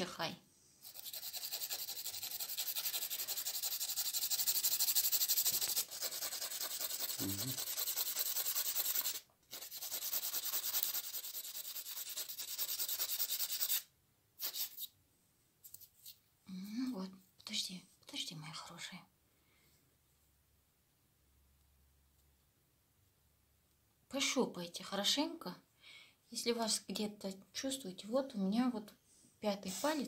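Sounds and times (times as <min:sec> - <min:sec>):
nail file rasping on claws: 0:00.8 - 0:14.9.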